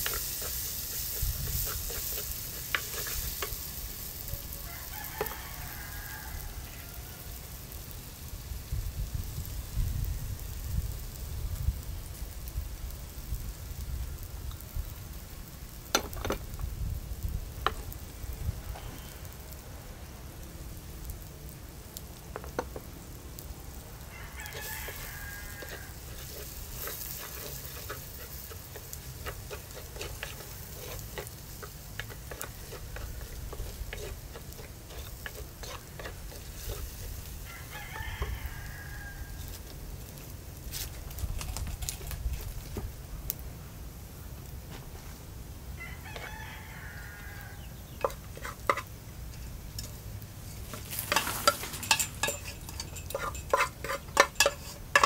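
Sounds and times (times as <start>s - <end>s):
wooden spoon scraping a pot: 0.0s - 4.2s, 24.4s - 38.4s, 47.9s - 55.0s
light sizzling in oil: 0.0s - 55.0s
rooster crowing: 4.2s - 7.4s, 24.0s - 27.0s, 37.3s - 39.6s, 45.8s - 47.8s.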